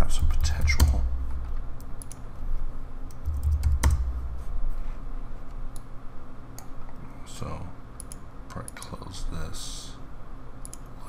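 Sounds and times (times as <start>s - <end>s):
keyboard typing: 0.0s - 2.2s, 3.1s - 4.2s.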